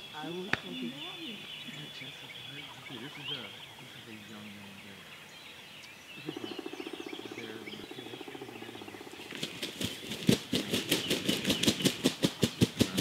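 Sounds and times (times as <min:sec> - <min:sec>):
turkey wings beating: 0:09.0 - 0:13.0.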